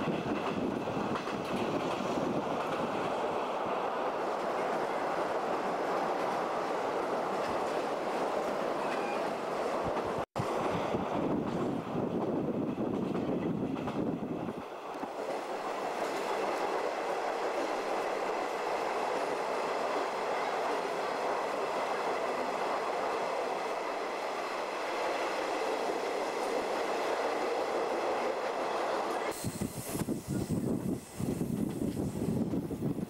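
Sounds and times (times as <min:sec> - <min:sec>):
train wheels rushing on rail: 0:00.0 - 0:33.0
steady hiss: 0:29.1 - 0:32.9.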